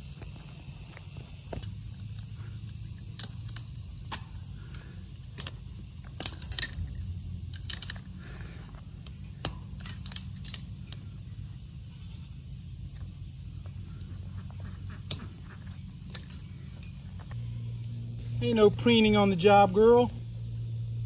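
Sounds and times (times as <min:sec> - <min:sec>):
sharp metal clicks: 0:01.5 - 0:08.4, 0:09.0 - 0:11.2, 0:14.9 - 0:17.4
metal clinks and scrapes: 0:01.6 - 0:11.2, 0:14.9 - 0:17.4.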